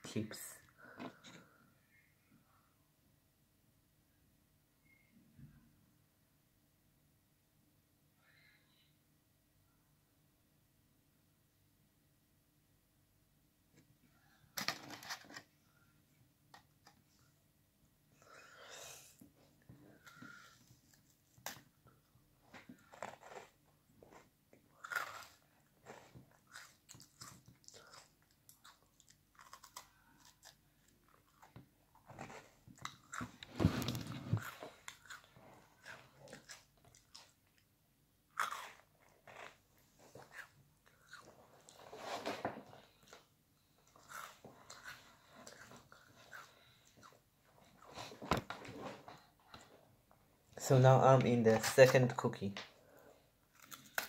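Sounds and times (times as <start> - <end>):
crunching and chewing biscuits: 20.0 - 49.8, 52.8 - 54.0.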